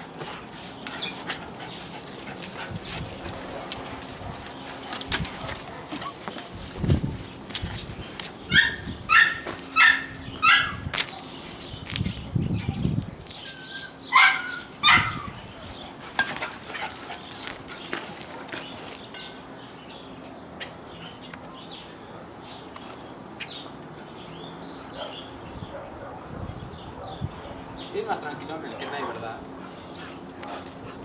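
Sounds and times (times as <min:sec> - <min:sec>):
puppy barking: 0:08.5 - 0:11.3, 0:14.1 - 0:15.3, 0:25.0 - 0:26.3.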